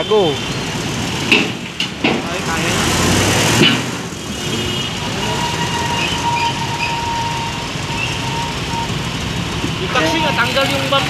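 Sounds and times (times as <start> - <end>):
heavy truck rumble: 0.0 - 11.0
thin steady squeal: 5.3 - 9.0.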